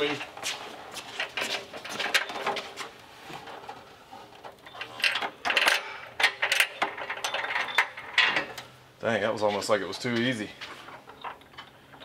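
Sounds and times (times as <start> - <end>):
metal clinks and knocks: 4.6 - 8.6.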